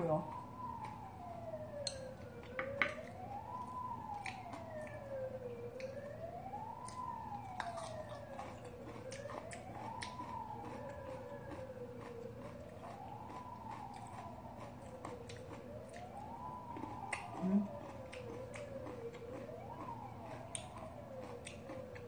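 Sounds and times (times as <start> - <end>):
siren wailing: 0.0 - 22.0.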